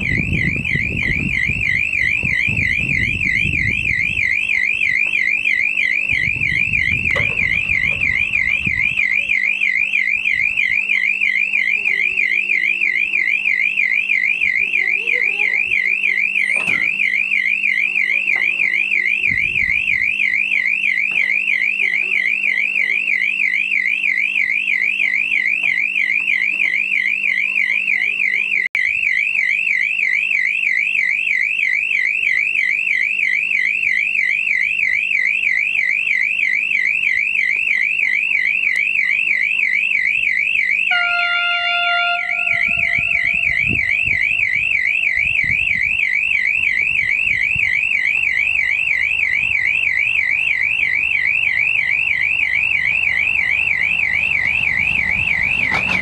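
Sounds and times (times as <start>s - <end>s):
electronic warning tone warbling: 0.0s - 28.7s, 37.1s - 56.0s
diesel train horn: 40.9s - 45.2s
low rumble of train: 40.9s - 45.9s, 52.1s - 56.0s.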